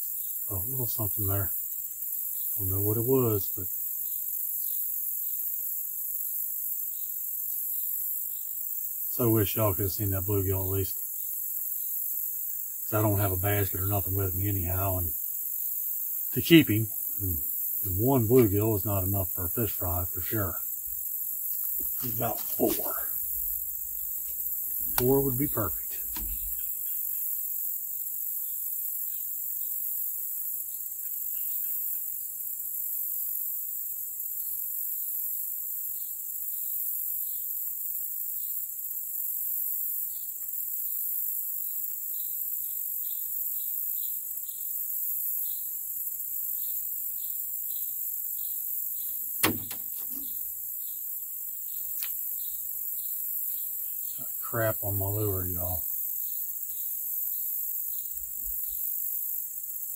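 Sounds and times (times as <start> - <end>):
high-pitched insect chorus: 0.0 - 59.9
sharp knock: 49.4 - 50.3.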